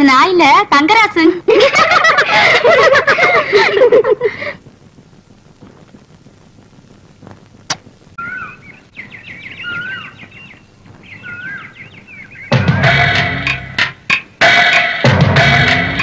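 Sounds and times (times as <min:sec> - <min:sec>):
small birds chirping: 0:06.8 - 0:12.7
loud music: 0:12.5 - 0:16.0.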